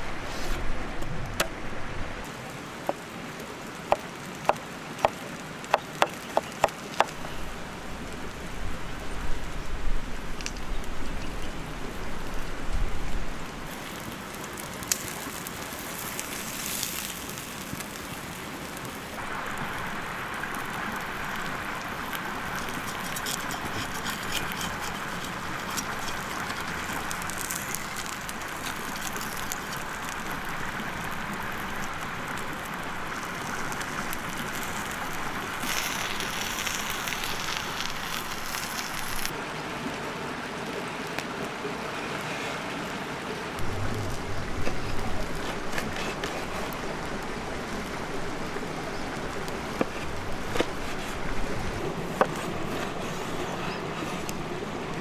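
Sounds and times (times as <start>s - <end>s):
food sizzling on hot stone: 13.7s - 39.3s
low rumbling: 43.6s - 52.7s.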